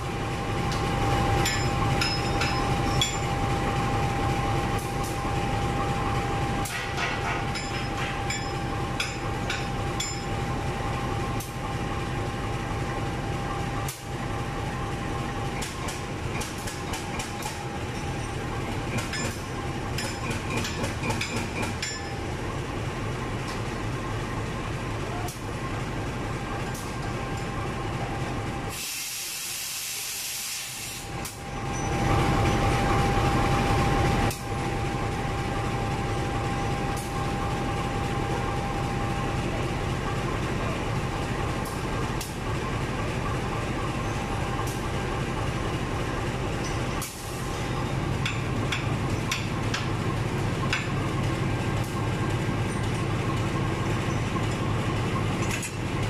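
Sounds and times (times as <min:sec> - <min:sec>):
locomotive idling with whine: 0:00.0 - 0:56.0
air hiss: 0:28.7 - 0:31.1.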